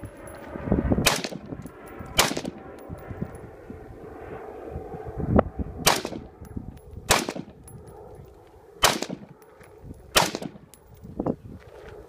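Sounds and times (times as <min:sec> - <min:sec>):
rifle single shots: 0:01.0 - 0:02.6, 0:05.8 - 0:06.3, 0:07.1 - 0:07.6, 0:08.8 - 0:09.4, 0:10.1 - 0:10.7.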